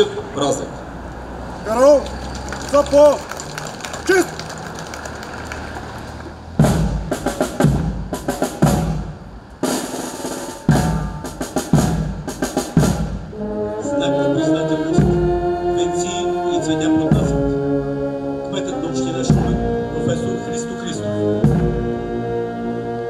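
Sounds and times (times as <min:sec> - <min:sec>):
drums striking a beat: 0:06.6 - 0:13.3, 0:15.0 - 0:15.4, 0:19.3 - 0:19.8, 0:21.4 - 0:22.0
brass playing sustained chords: 0:13.0 - 0:23.0.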